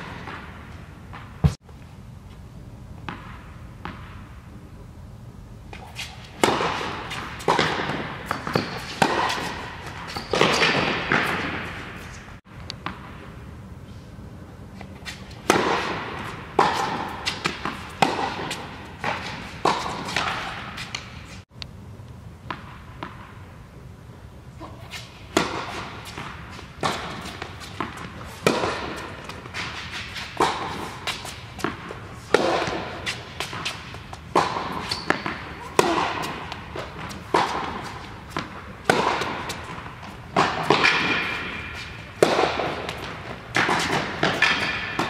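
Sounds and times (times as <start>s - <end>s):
racket hitting tennis ball: 0.0s - 1.6s, 5.7s - 13.3s, 14.8s - 21.4s, 24.6s - 45.0s
tennis ball bouncing: 3.0s - 4.3s, 5.7s - 13.3s, 15.0s - 21.4s, 25.3s - 45.0s.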